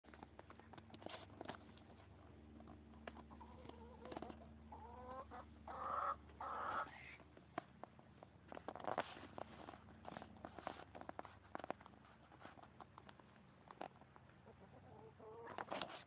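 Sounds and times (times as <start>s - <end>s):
chickens clucking: 0.1s - 8.2s, 9.1s - 16.0s.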